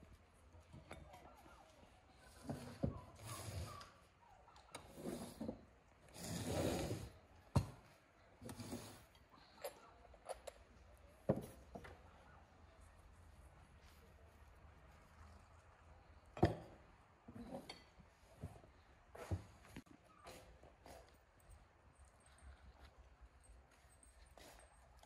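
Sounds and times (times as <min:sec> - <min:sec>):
rustling and sliding scrapes: 0:02.3 - 0:04.0, 0:04.9 - 0:07.3, 0:08.4 - 0:09.1.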